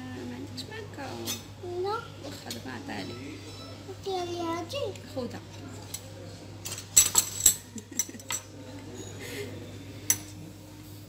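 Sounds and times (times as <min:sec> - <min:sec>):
cutlery and dishes clinking: 0:05.5 - 0:10.5.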